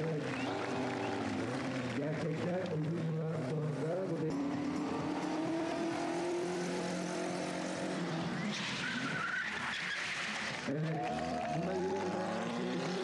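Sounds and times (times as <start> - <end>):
car engines running hard: 0.0 - 13.0
tyres squealing: 8.3 - 10.5.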